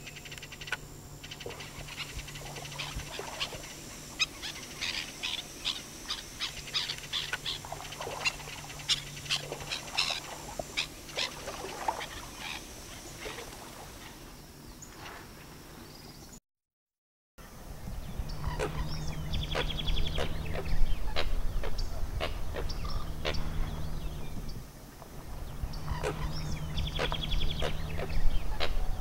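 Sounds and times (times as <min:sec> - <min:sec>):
bird calling sharp notes: 0:00.0 - 0:13.2, 0:25.8 - 0:29.0.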